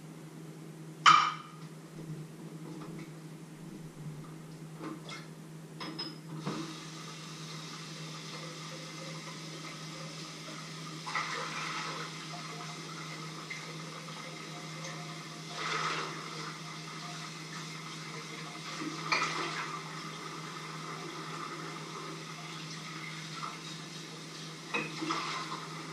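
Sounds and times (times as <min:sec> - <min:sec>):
steady low hum: 0:00.0 - 0:25.9
tap water running into sink: 0:06.4 - 0:25.9.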